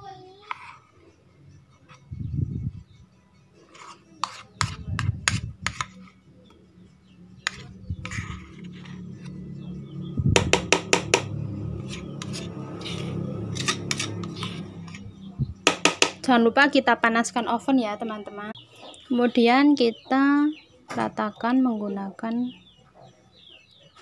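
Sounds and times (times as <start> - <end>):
spoon scraping mixing bowl: 3.6 - 6.6, 7.4 - 9.4, 10.4 - 15.2.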